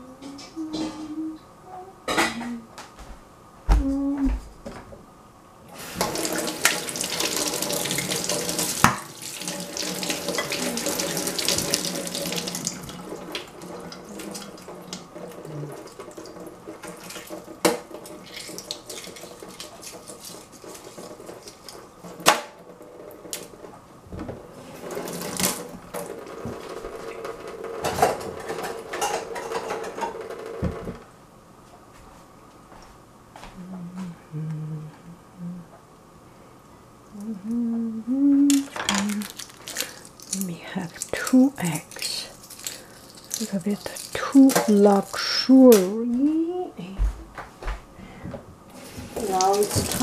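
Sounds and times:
eggs cracking: 38.5 - 45.9.

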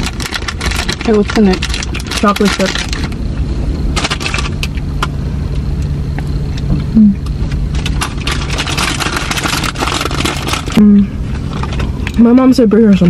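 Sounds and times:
car engine humming: 0.0 - 13.0
person humming mm: 6.9 - 7.2.

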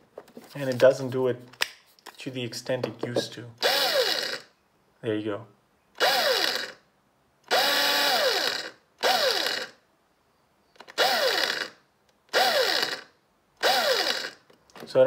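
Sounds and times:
electric screwdriver whirring: 3.6 - 4.5, 6.0 - 6.8, 7.5 - 9.8, 10.8 - 14.5.

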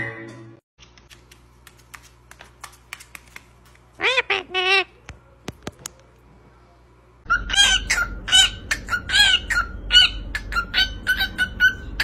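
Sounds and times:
parrot squawking: 4.0 - 5.0, 7.3 - 12.0.

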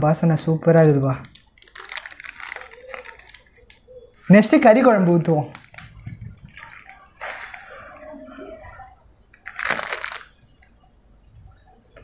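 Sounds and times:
plastic packet rustling: 1.2 - 8.0, 9.3 - 10.6.

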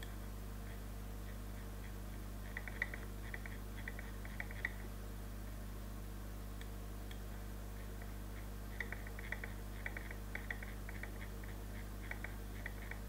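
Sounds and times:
steady low hum: 0.0 - 13.0
mouse scroll wheel clicking: 2.5 - 4.8, 8.8 - 13.0.

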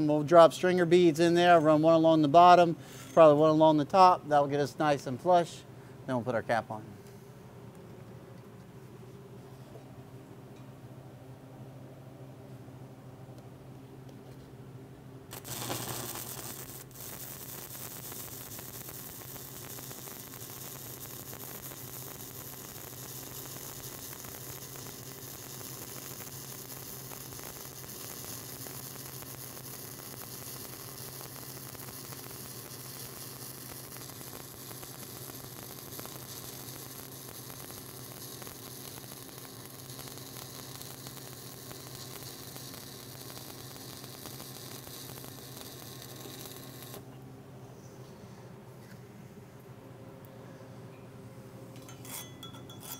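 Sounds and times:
steady low hum: 0.0 - 52.9
welding arc crackling sizzle: 15.3 - 47.1.

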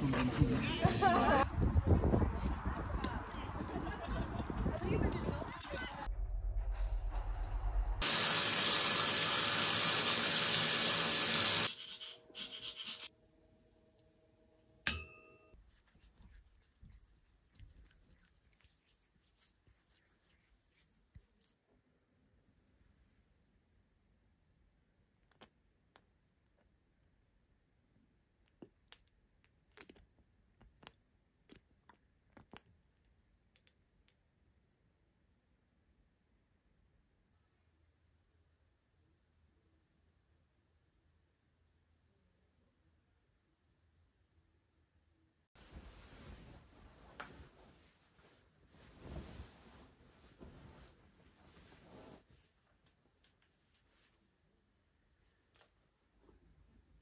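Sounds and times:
short ringing clink: 14.9 - 15.6.

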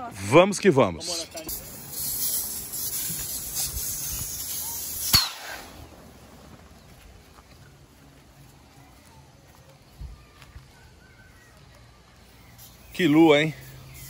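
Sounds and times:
air hissing out of inflatable: 1.5 - 5.9, 12.6 - 14.0.

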